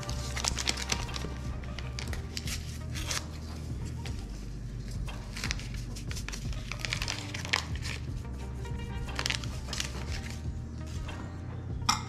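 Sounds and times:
packet crinkling: 0.0s - 3.4s, 5.3s - 8.0s, 9.1s - 10.4s.

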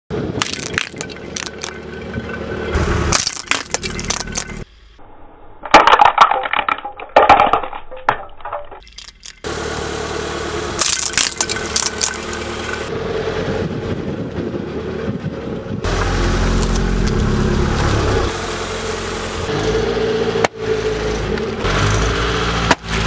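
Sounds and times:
car engine running: 0.1s - 5.0s, 8.7s - 23.0s
ornaments cracking and crunching: 0.4s - 1.8s, 3.1s - 4.6s, 7.8s - 9.4s, 10.8s - 12.7s, 16.6s - 18.0s.

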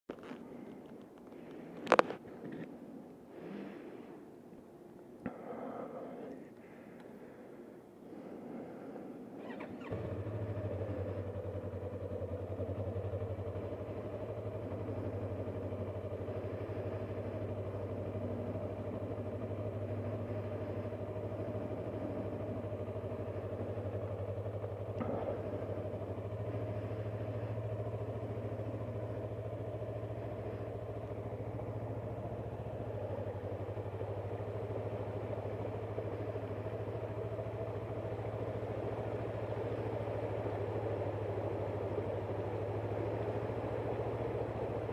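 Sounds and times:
motorcycle engine running low: 0.1s - 2.8s, 8.1s - 44.9s.

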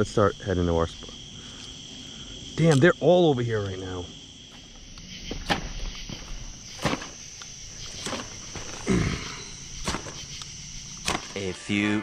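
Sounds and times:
night insects chirring: 0.0s - 12.0s
footsteps walking: 4.4s - 8.9s.

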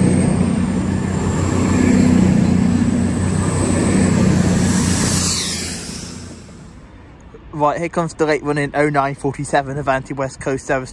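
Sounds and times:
thin high whine: 0.0s - 7.0s
diesel engine drone: 0.0s - 7.5s.

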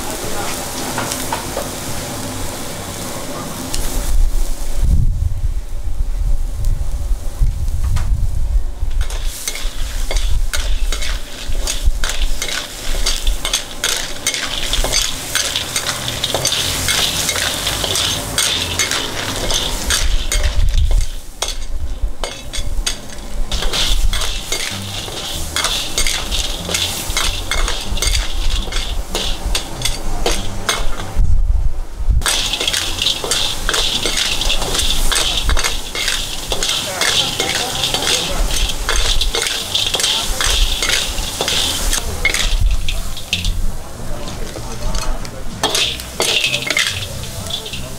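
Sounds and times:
hot oil sizzling: 0.0s - 5.7s, 6.4s - 31.2s, 32.2s - 47.9s
metal ladle scraping wok: 8.9s - 31.2s, 32.2s - 47.9s.

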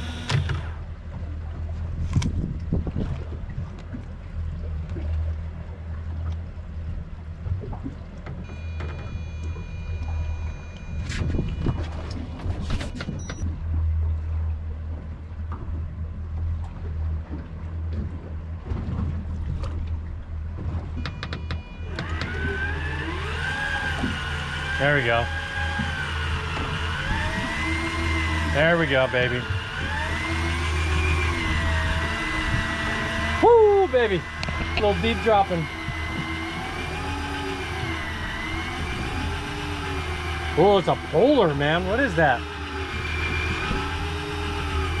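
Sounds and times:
high electric reel whine: 0.0s - 0.8s, 8.4s - 13.4s, 21.0s - 45.0s
outboard motors idling: 0.0s - 45.0s
knocks against the hull: 20.6s - 22.4s.

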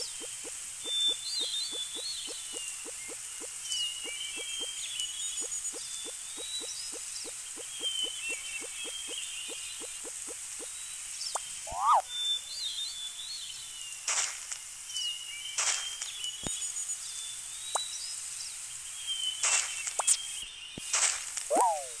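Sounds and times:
birds chirping and calling: 0.0s - 10.6s
steady hiss: 0.0s - 22.0s.

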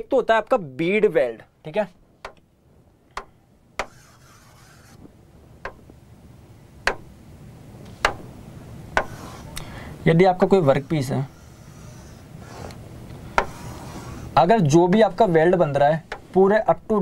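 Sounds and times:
taps on touchscreen: 3.1s - 4.0s, 5.6s - 5.9s, 6.8s - 7.1s, 8.0s - 8.2s
faint brief rubbing: 9.1s - 9.6s, 10.8s - 12.8s, 13.4s - 14.4s.

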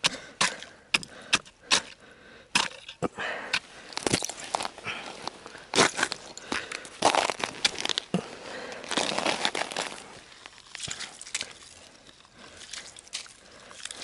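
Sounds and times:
ice chisel striking ice: 0.0s - 4.5s
ice and slush crunching: 3.7s - 14.0s.

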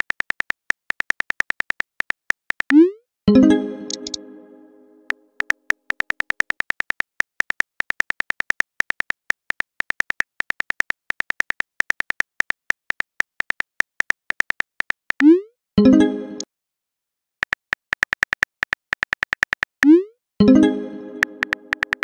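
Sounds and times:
phone keyboard clicks: 3.9s - 4.2s, 5.4s - 15.2s, 17.4s - 19.7s, 21.2s - 22.0s.

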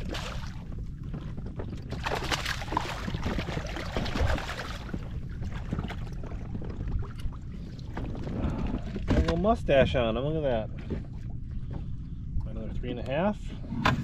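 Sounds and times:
water splashing: 0.0s - 0.8s, 1.9s - 9.4s
wind rumbling on microphone: 0.0s - 14.0s.

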